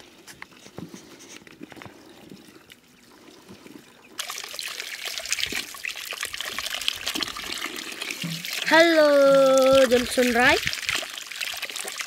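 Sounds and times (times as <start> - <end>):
water splashing into plastic basin: 4.2 - 12.0.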